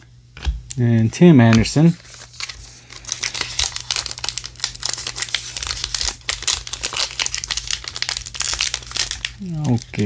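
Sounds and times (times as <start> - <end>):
wrapper crinkling: 1.9 - 10.0.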